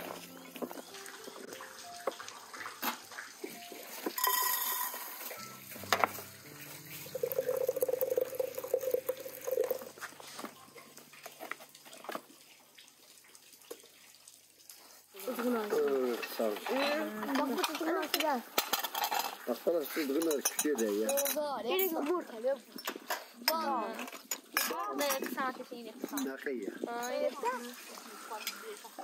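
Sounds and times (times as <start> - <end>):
hot water pouring into glass: 0.2 - 12.4, 15.1 - 21.4, 26.1 - 29.0
glasses and dishes clinking: 4.0 - 10.6, 16.2 - 19.4, 20.0 - 22.1, 26.0 - 26.4.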